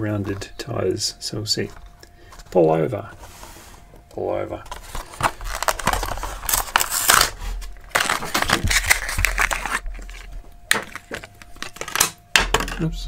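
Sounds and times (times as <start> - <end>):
plastic packaging crackling: 4.6 - 12.2.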